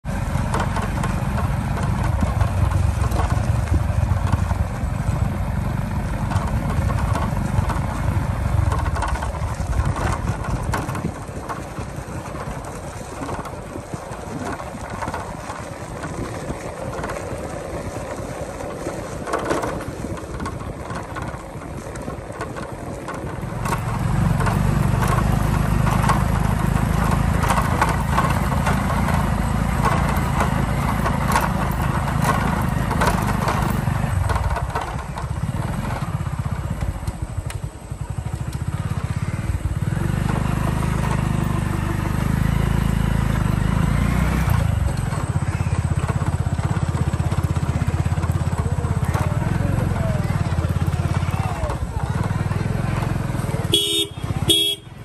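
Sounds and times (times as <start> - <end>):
road noise: 0.0 - 55.0
vehicle engine rumbling: 0.0 - 55.0
wind noise: 1.8 - 5.1, 7.0 - 23.5.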